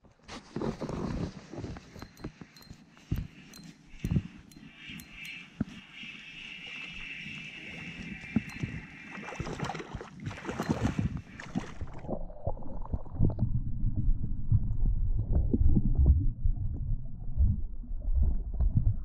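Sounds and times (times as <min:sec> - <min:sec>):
muffled underwater rumble: 0:10.7 - 0:19.0.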